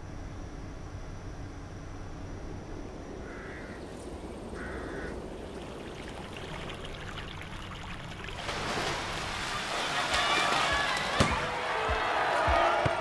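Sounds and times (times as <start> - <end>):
crow cawing: 3.2 - 3.8, 4.6 - 5.2
water trickling: 3.8 - 11.0.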